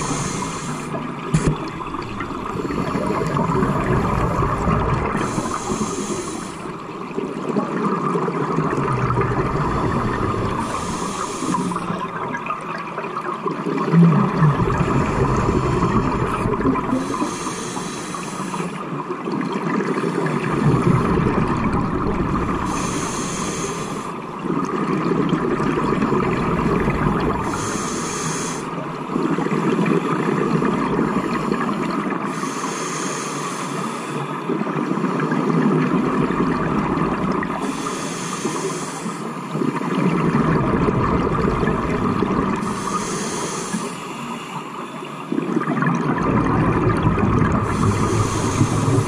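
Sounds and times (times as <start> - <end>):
regulator inhale hiss: 0.0 - 1.5, 5.0 - 6.8, 9.8 - 12.0, 15.0 - 18.8, 22.6 - 24.2, 27.4 - 28.8, 31.3 - 34.4, 37.6 - 39.5, 42.6 - 45.3, 47.6 - 49.0
exhaled bubbles burbling: 0.0 - 6.0, 6.6 - 17.4, 19.1 - 22.9, 24.2 - 27.7, 35.4 - 37.7, 39.6 - 43.0, 45.4 - 49.0.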